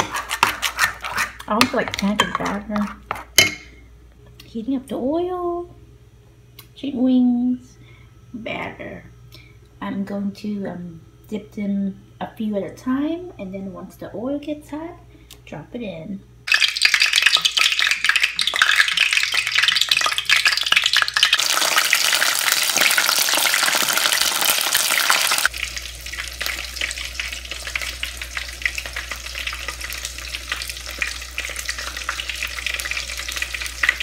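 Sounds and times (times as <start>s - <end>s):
chicken frying in oil: 16.5s - 34.0s.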